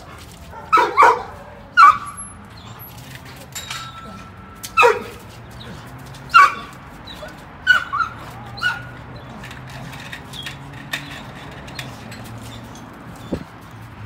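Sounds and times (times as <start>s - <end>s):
dog crying high-pitched: 6.3s - 9.3s.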